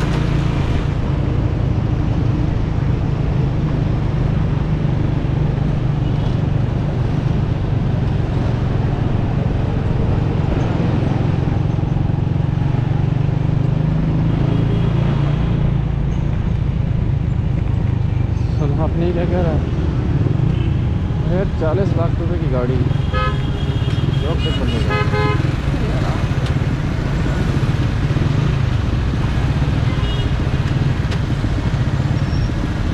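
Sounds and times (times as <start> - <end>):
street traffic: 0.0 - 32.9
motorcycle engine running: 22.8 - 32.9.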